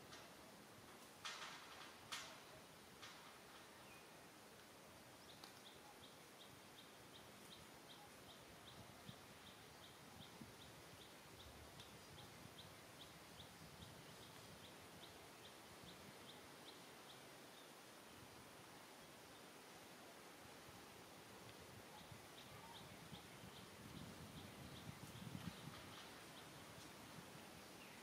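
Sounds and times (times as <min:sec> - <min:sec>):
faint high chirp: 0:21.9 - 0:23.6.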